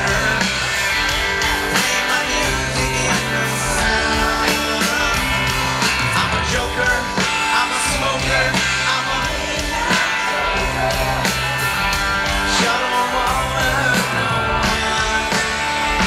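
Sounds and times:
live rock band playing: 0.0 - 16.0
person singing lead vocal: 0.0 - 16.0.

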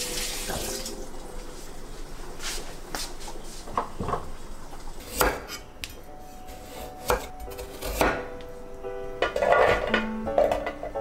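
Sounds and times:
knife chopping on wooden board: 5.1 - 5.6.

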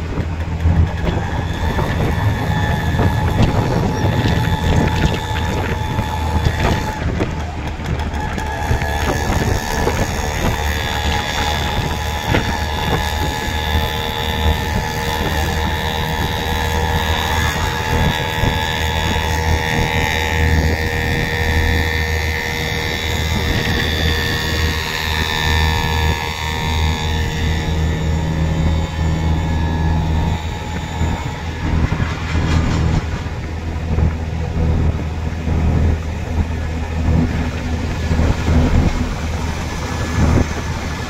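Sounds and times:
engine low rumble: 0.0 - 41.0
road noise: 0.0 - 41.0
wind rushing past microphone: 0.0 - 41.0.

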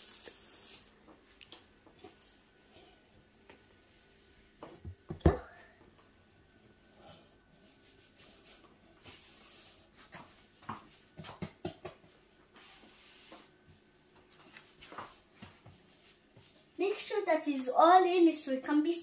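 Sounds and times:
hands rubbing dough: 7.6 - 17.2.

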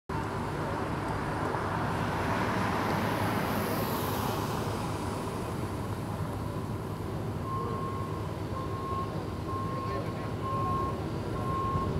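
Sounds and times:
low rumble of road noise: 0.1 - 11.9
car driving past: 1.2 - 5.6.

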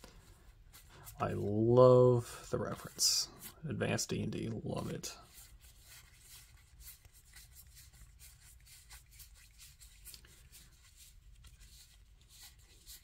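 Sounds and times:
cards being shuffled and fanned: 4.8 - 13.0.

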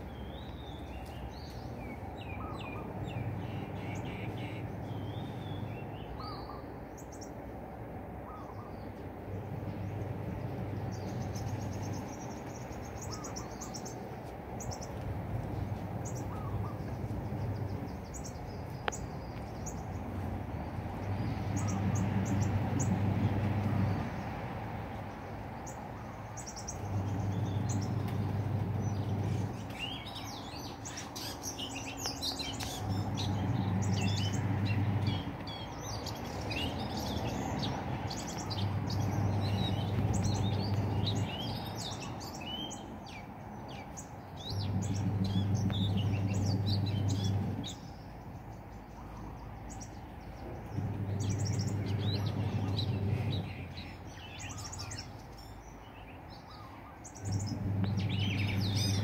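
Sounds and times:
small birds chirping: 0.0 - 7.6, 8.2 - 59.0
low steady hum: 14.8 - 25.3, 26.8 - 31.0, 31.6 - 41.8, 44.4 - 48.0, 50.4 - 54.2, 57.2 - 59.0.

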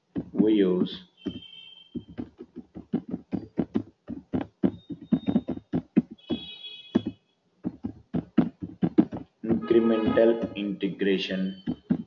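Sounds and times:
typing on computer keyboard: 1.3 - 9.7.

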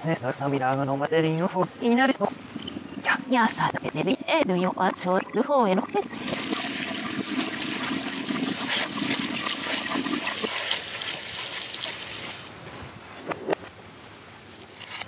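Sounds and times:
reversed tap water running: 2.1 - 12.5
berries rubbed in mesh strainer: 6.6 - 12.5.

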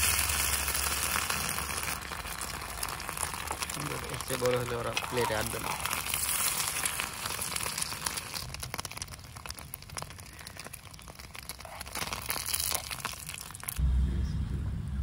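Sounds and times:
egg sizzling in oil: 0.0 - 13.8.

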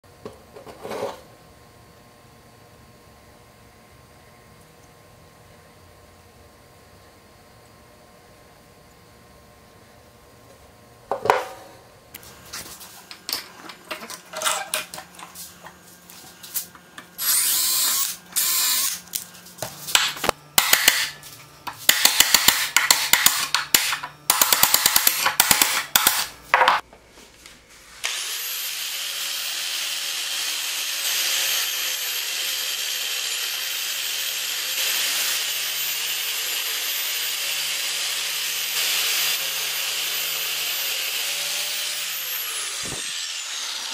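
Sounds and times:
angle grinder wire wheel on metal: 13.6 - 15.0
electric drill boring wood: 17.2 - 19.0, 28.0 - 43.9.

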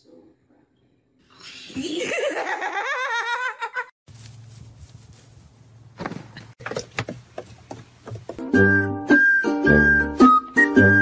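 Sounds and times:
person laughing hard: 1.7 - 3.9.

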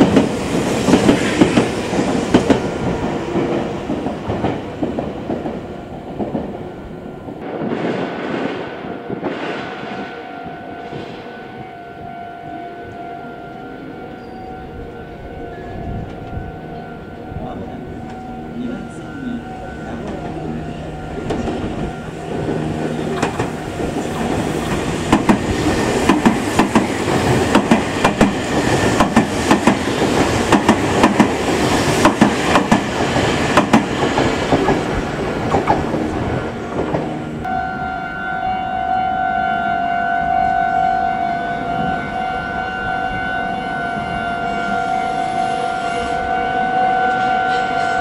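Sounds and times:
level-crossing alarm ringing: 8.8 - 32.5, 37.3 - 48.0
train wheels clattering: 21.2 - 37.2.

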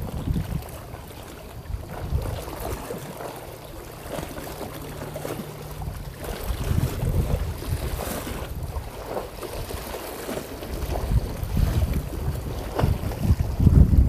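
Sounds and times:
wind gusting on microphone: 0.0 - 3.0, 5.8 - 9.9, 10.7 - 14.0
low steady hum: 0.0 - 9.4
water lapping: 0.0 - 14.0.

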